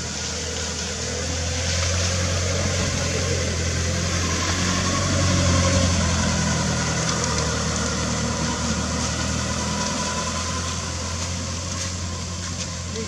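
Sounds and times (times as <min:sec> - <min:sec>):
constant hiss: 0:00.0 - 0:04.8.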